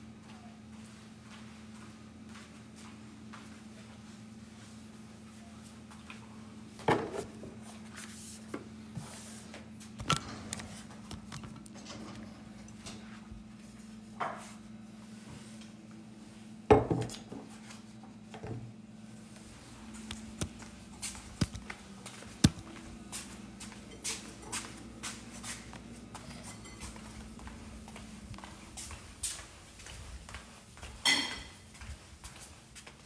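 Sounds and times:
steady low hum: 0:00.0 - 0:33.0
dishes and pans clattering: 0:31.0 - 0:31.6.

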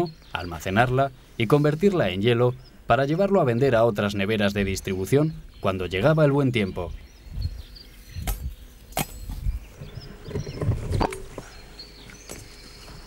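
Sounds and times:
stems snapping: 0:08.2 - 0:09.3.

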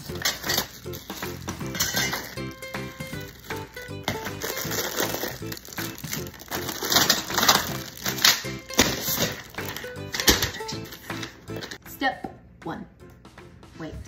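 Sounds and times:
upbeat background music: 0:00.0 - 0:14.0
plastic sheeting crinkling: 0:02.2 - 0:10.4.

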